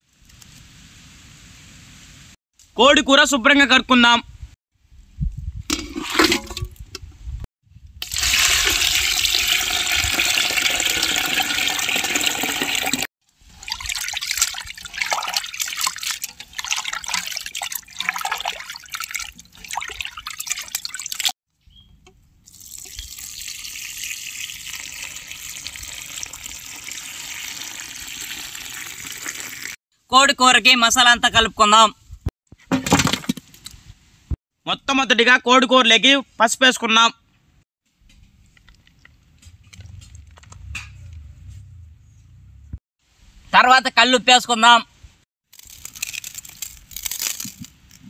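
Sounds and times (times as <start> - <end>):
water pouring onto ground: 8.0 - 21.3, 22.5 - 29.8
water splashing and sloshing: 8.0 - 21.4, 37.9 - 41.8.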